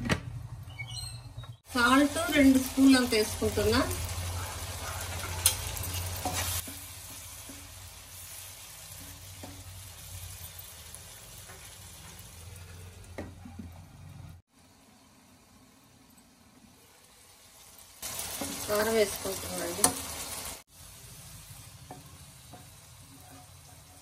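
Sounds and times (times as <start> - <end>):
frying sizzle: 1.6 - 24.0
spatula scraping a wok: 4.0 - 13.1, 21.0 - 24.0.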